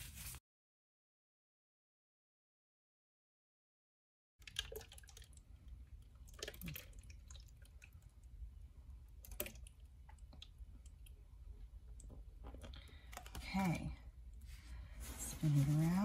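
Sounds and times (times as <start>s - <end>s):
faint drips and small clicks: 4.4s - 8.4s, 9.0s - 13.8s
water trickling into a tumbler: 4.4s - 8.4s, 9.0s - 11.2s
low steady hum: 4.4s - 16.0s.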